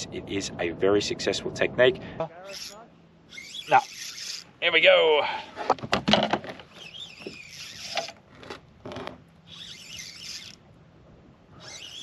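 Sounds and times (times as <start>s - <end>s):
fishing reel winding: 2.5s - 4.5s, 6.8s - 8.2s, 9.5s - 10.6s, 11.6s - 12.0s.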